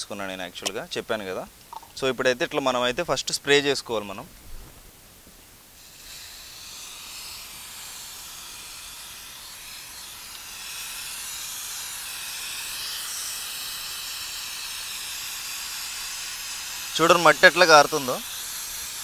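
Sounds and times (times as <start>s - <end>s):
aerosol spray hiss: 5.7s - 19.0s.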